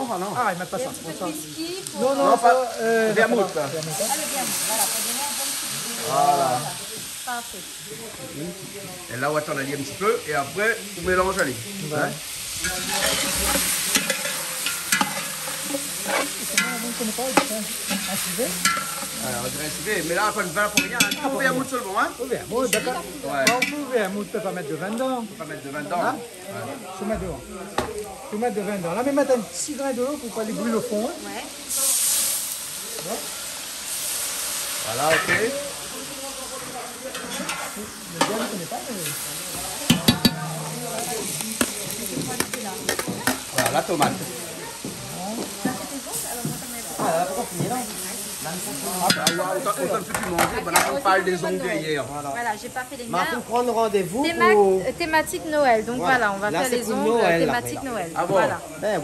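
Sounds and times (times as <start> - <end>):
meat and onions sizzling in a pot: 0.0 - 59.0
utensil knocking and scraping a pot: 12.6 - 19.2, 39.1 - 44.2
utensil knocking on pot: 39.9 - 43.8.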